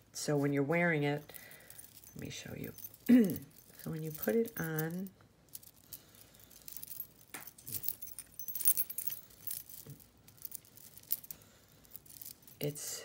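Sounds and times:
glass beads clinking: 1.1 - 12.8.

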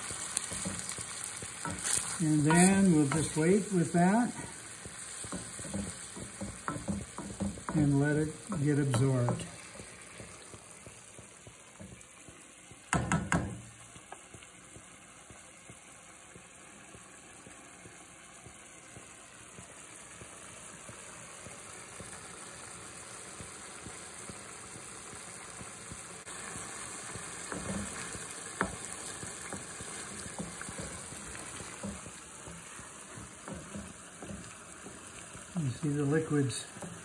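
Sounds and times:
wooden spoon scraping a pan: 0.0 - 12.0, 26.3 - 37.0
risotto simmering in a pan: 0.0 - 37.0.

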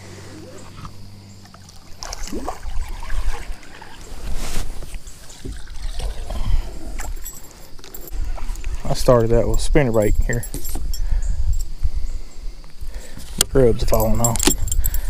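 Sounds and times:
gear being moved about: 3.2 - 5.7.

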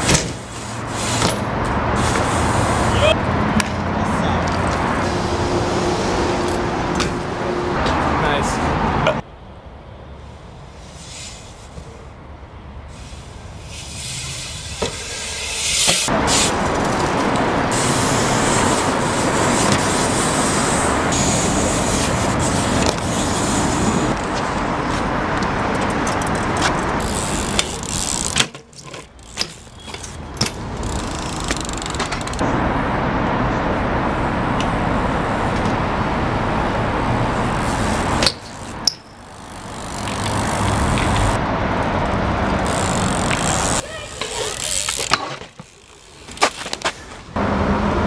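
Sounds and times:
bike clacking and landing: 0.0 - 2.4, 13.7 - 32.4, 37.4 - 41.4, 42.4 - 47.4
bike tyres rolling on concrete: 0.0 - 8.6, 12.9 - 32.5, 34.2 - 47.5.

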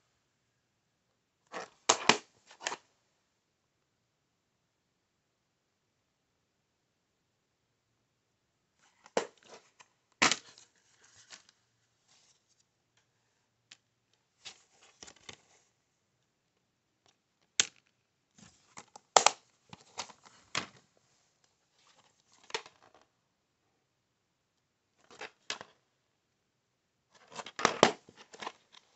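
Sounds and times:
plastic cases clicking and snapping: 1.6 - 2.8, 18.8 - 20.8.

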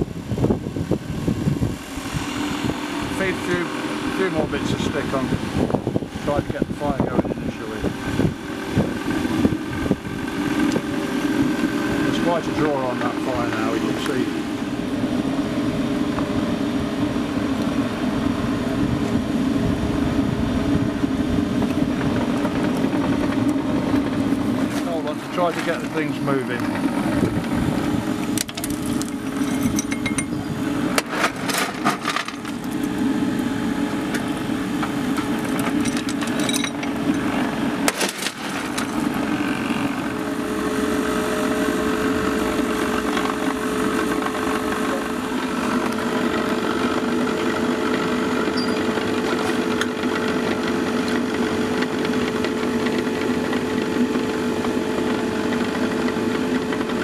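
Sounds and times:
electric blower fan humming: 0.0 - 57.0
metal clinks and knocks: 28.4 - 30.4, 35.5 - 37.2.

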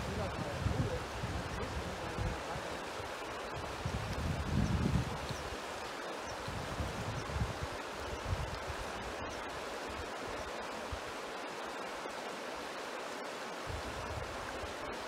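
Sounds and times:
wind buffeting microphone: 0.0 - 2.8, 3.5 - 5.6, 6.4 - 9.0
fast-flowing river rushing: 0.0 - 15.0.

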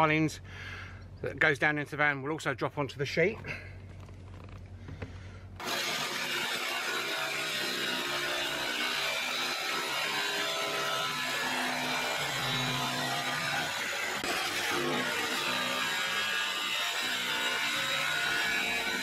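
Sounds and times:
jigsaw cutting sheet metal: 5.6 - 19.0.

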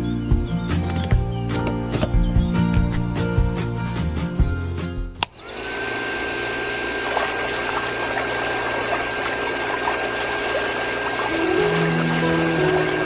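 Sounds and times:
small pump motor whine: 5.3 - 13.0
water spouting and splashing: 5.6 - 13.0.

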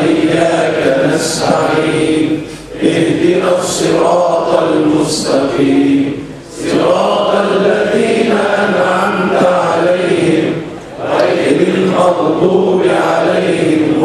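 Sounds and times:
man chanting into a microphone: 0.0 - 10.6, 11.3 - 14.0.

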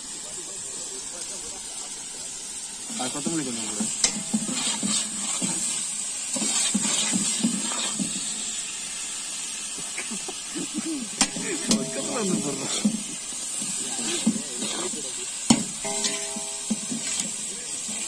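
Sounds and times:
vegetables sizzling in hot oil: 0.0 - 18.0
ladle scraping and knocking on pot: 3.9 - 5.8, 15.5 - 17.4.

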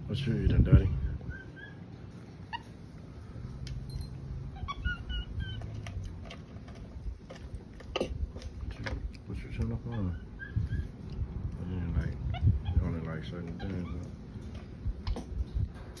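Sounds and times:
monkey high peeps: 1.0 - 2.9, 4.4 - 6.1, 9.5 - 14.2.

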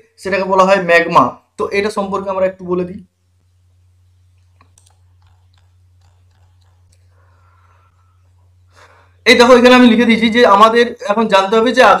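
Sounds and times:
electrical hum: 0.0 - 12.0
computer mouse clicks: 4.3 - 7.3.

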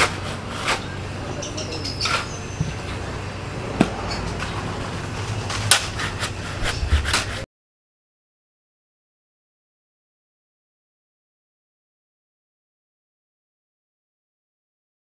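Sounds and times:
shovels scraping wet gravel: 0.0 - 1.0, 4.2 - 7.4
steady low hum: 0.0 - 7.5.

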